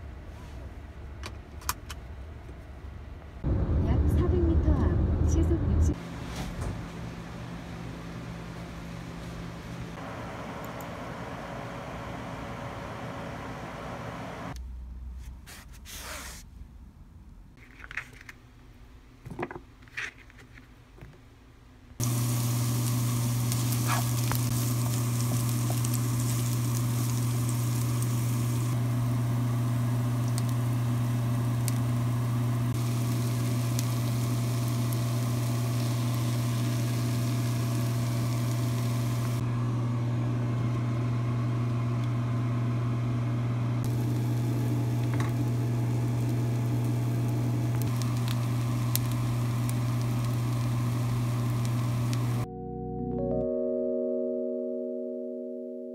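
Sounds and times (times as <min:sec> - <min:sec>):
food sizzling in a frying pan: 0:22.0 - 0:39.4, 0:43.9 - 0:52.4.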